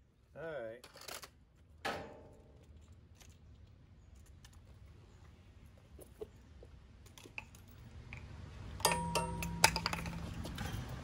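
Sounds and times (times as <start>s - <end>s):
sharp metallic clink: 8.8s - 10.2s.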